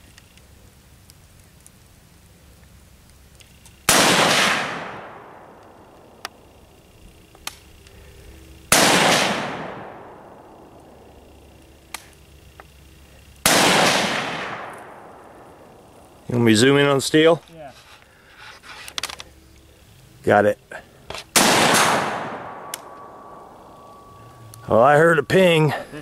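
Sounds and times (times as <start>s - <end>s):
rifle shots with echo: 3.9s - 5.6s, 8.7s - 10.7s, 13.4s - 15.4s, 21.3s - 24.1s.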